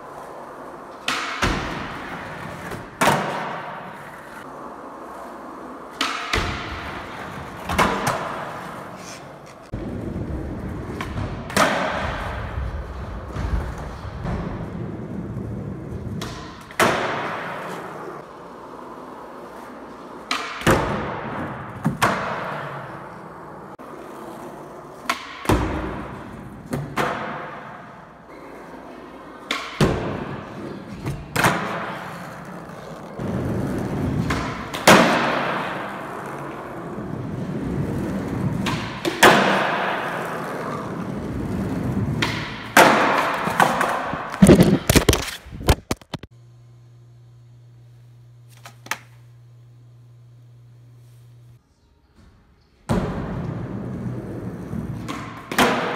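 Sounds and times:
skateboard wheels rolling on concrete: 0:00.0 - 0:46.3, 0:53.3 - 0:55.9
skateboard slapping down on landings: 0:00.9 - 0:04.0, 0:05.9 - 0:08.7, 0:10.8 - 0:14.7, 0:16.0 - 0:17.9, 0:25.0 - 0:27.7, 0:34.0 - 0:36.3, 0:37.7 - 0:40.8, 0:41.4 - 0:46.3, 0:54.9 - 0:55.9
skateboard pops: 0:42.2 - 0:46.3.

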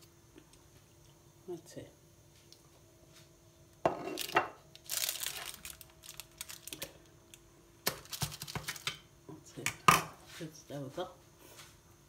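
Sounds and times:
parchment paper crinkling: 0:04.8 - 0:07.1.

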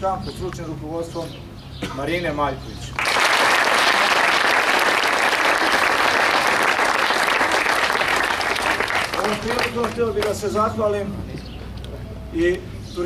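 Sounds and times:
crowd applauding: 0:03.0 - 0:10.4.

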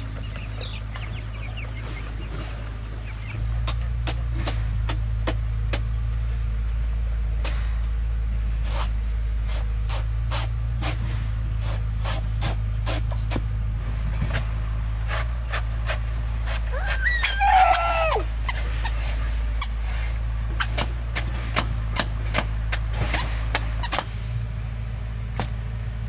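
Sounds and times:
steady low rumble: 0:00.0 - 0:16.9, 0:18.2 - 0:26.0
cleaver chopping: 0:03.6 - 0:05.9, 0:12.0 - 0:13.5, 0:15.0 - 0:17.1, 0:20.6 - 0:24.1.

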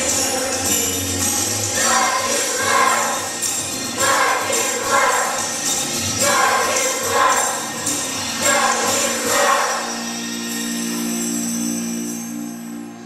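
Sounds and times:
jingling percussion: 0:00.0 - 0:13.0
choir singing: 0:01.7 - 0:10.2.

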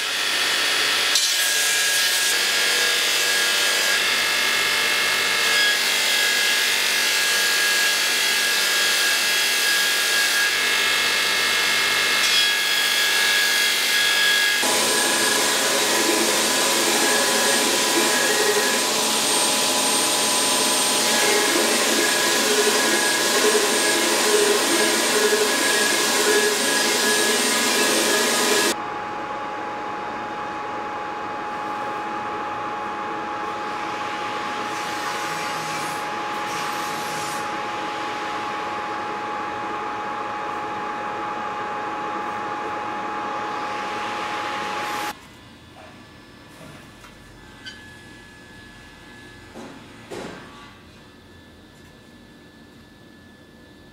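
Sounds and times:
belt grinder grinding steel: 0:14.6 - 0:28.8
machine hum with thin tone: 0:28.7 - 0:53.9.

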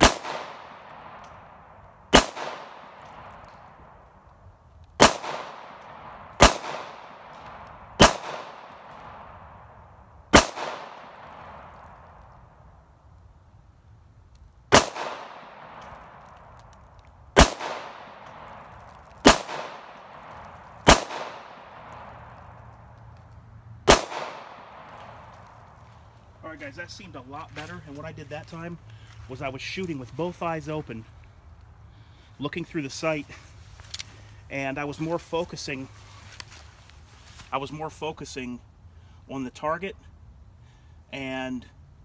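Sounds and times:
pistol shots with echo: 0:00.0 - 0:04.0, 0:05.0 - 0:12.2, 0:14.7 - 0:16.4, 0:17.4 - 0:22.6, 0:23.8 - 0:25.6.

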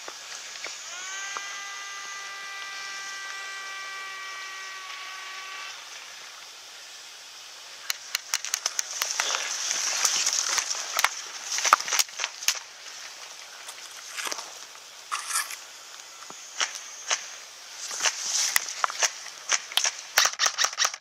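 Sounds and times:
tall grass rustling: 0:00.0 - 0:01.4, 0:03.9 - 0:20.4
steady hum of even tones: 0:00.0 - 0:20.2
sharp clicks: 0:07.8 - 0:12.6, 0:18.5 - 0:21.0.

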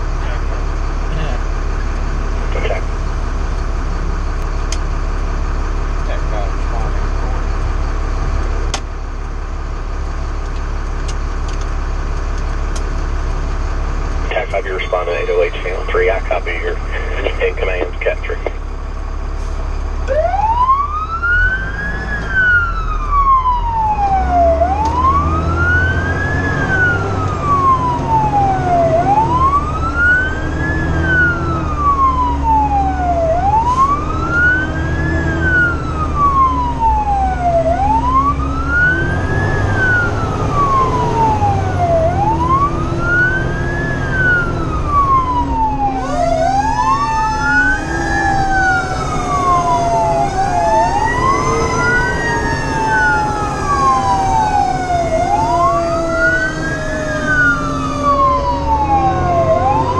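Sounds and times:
fire truck siren wailing: 0:00.0 - 0:59.9
truck engine rumble: 0:00.0 - 0:59.9
second siren tone: 0:20.1 - 0:59.9.

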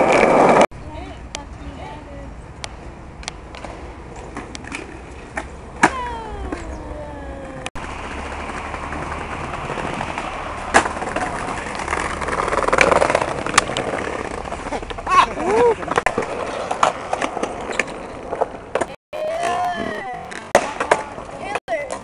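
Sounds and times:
skateboard wheels rolling: 0:00.0 - 0:02.1, 0:02.8 - 0:22.0
skateboard popping and landing: 0:03.5 - 0:06.7, 0:08.0 - 0:22.0.

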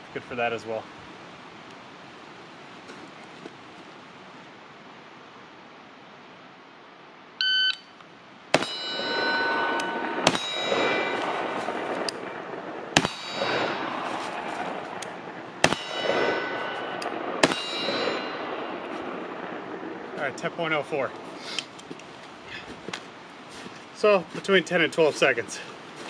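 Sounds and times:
rustling of movement: 0:01.7 - 0:04.5, 0:08.6 - 0:26.0
rifle shots: 0:08.5 - 0:20.4
steel target ringing: 0:08.5 - 0:20.8.

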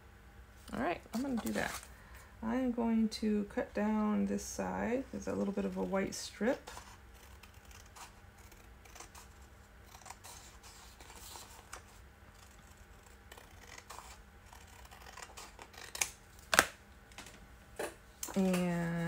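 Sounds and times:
scissors snipping paper: 0:12.4 - 0:16.7.

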